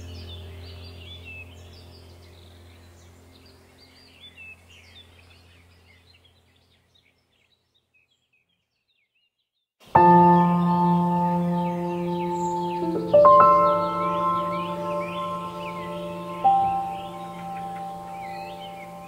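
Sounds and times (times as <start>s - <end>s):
faint birds chirping: 0.0s - 19.0s
steady low drone: 10.0s - 19.0s.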